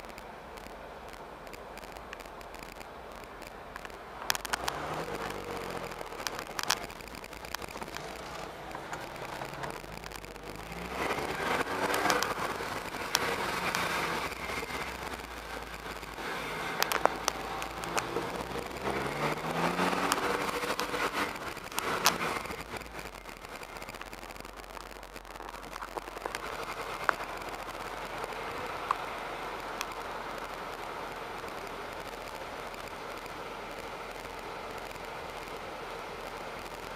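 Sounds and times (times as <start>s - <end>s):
sharp clicks: 0.0s - 35.6s
road and traffic noise: 0.0s - 36.9s
car engine from inside cabin: 3.8s - 32.2s.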